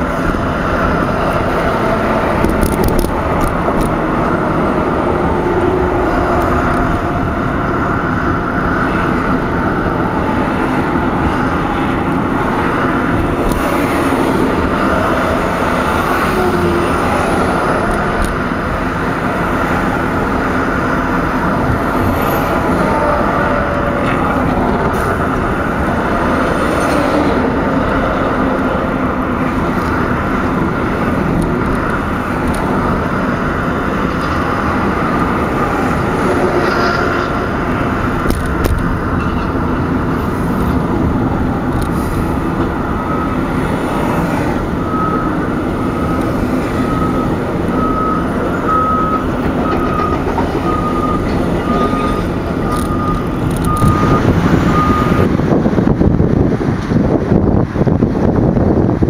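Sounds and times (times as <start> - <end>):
car road and engine noise: 0.0 - 59.0
reversing alarm beeps: 42.9 - 55.4.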